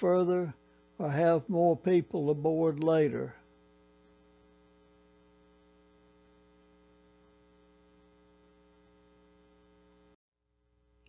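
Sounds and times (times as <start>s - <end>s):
faint mains hum: 0.0s - 11.0s.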